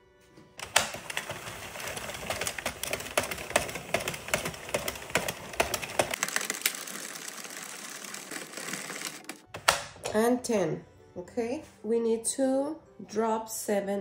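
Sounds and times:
knitting machine clattering: 0.6s - 9.5s.

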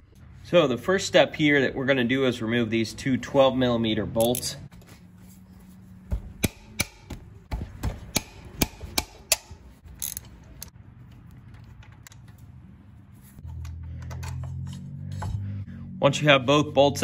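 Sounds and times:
socket ratchet clicking: 8.2s - 10.7s.

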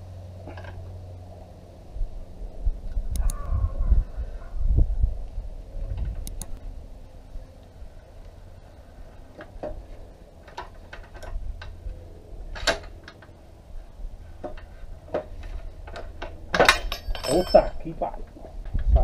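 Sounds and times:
socket wrench clicking: 6.2s - 6.6s.

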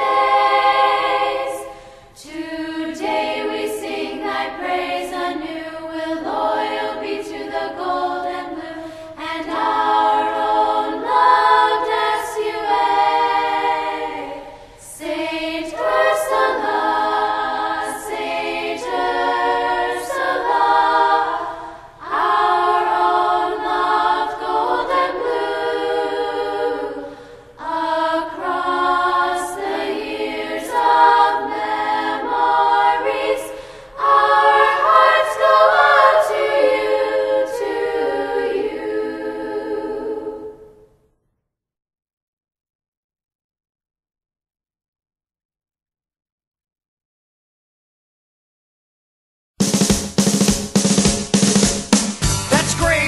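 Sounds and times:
choir singing unaccompanied: 0.0s - 40.9s.

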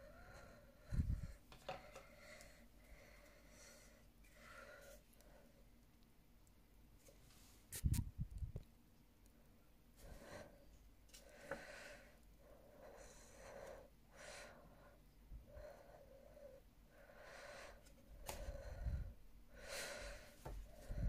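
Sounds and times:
close breathing: 0.0s - 5.7s, 10.0s - 21.0s.

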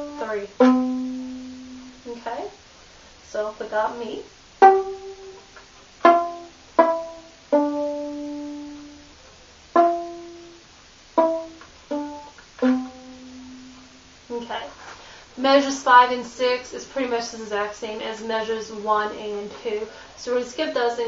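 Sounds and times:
viola plucked pizzicato: 0.0s - 2.3s, 4.6s - 14.9s.

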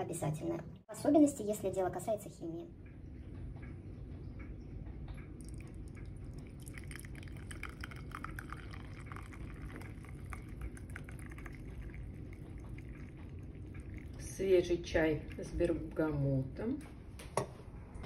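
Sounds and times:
tea pouring into a cup: 5.4s - 15.9s.

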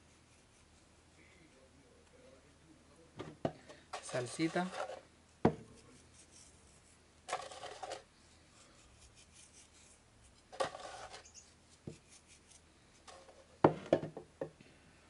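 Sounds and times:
scratchy rustles of seasoning: 3.9s - 13.6s.

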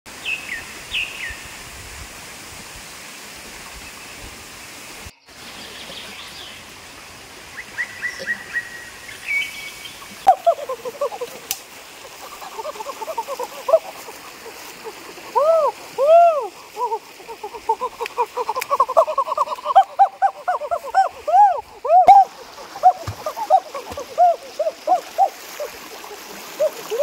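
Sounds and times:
background hiss: 0.1s - 27.0s
birds calling: 7.6s - 27.0s.

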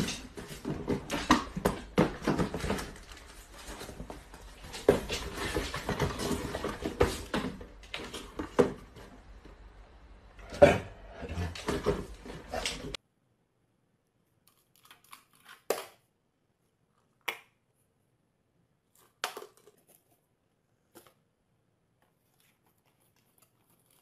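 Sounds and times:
cardboard boxes knocking on tiles: 0.0s - 9.2s.

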